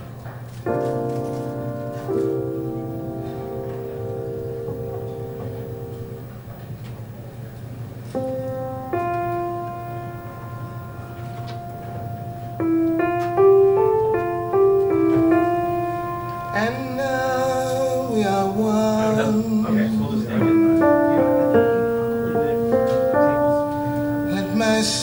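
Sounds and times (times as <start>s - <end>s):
keyboard chords over loudspeakers: 0.0s - 7.4s, 8.1s - 25.0s
person singing: 14.9s - 25.0s.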